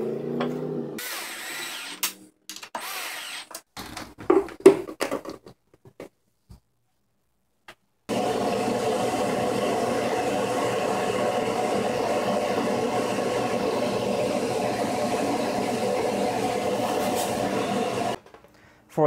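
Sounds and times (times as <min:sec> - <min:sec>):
electric motor whirring: 0:01.0 - 0:02.2, 0:02.8 - 0:03.6.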